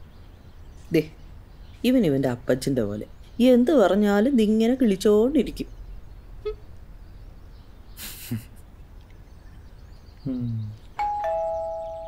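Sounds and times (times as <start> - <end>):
low hum of people: 0.0 - 12.0
person laughing: 8.0 - 8.5
two-note doorbell chime: 11.0 - 12.0.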